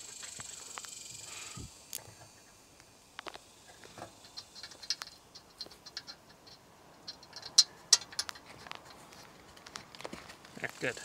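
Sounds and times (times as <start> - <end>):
metal clicks of screws turning: 4.2 - 9.0.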